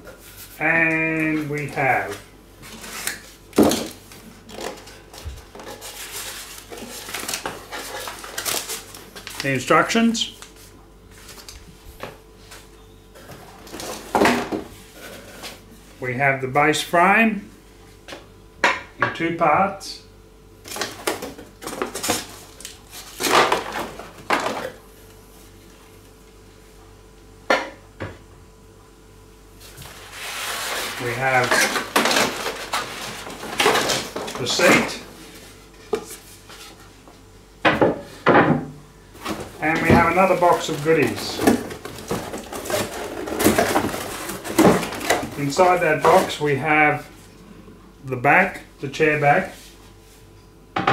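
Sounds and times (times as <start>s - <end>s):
cardboard packaging rustling: 1.3s - 9.6s, 10.2s - 11.7s, 20.7s - 24.8s, 29.6s - 37.0s, 39.2s - 46.4s
cardboard knocks and thumps: 37.6s - 45.3s.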